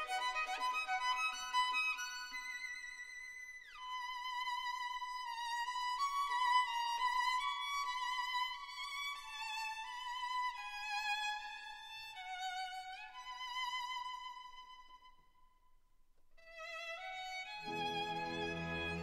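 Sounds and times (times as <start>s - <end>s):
slow violin melody: 16.4s - 19.0s.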